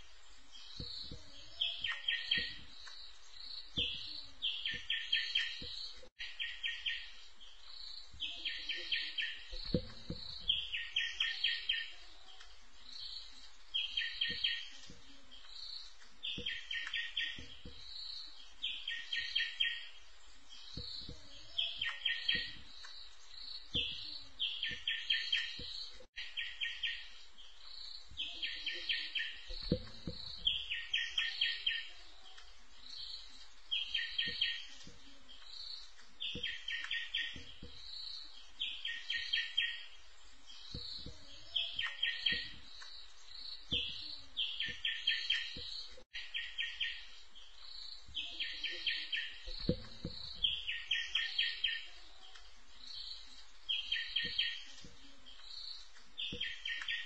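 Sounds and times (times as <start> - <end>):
faint low thumps: 9.5 - 10.9, 49.4 - 50.8.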